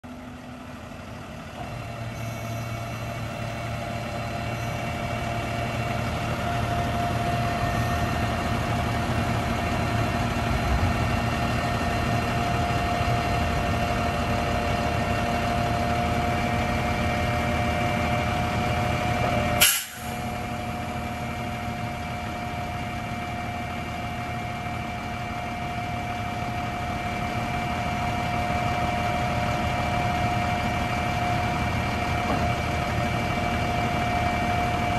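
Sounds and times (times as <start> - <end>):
truck diesel engine running: 0.0 - 34.9
short sharp burst: 19.6 - 20.2.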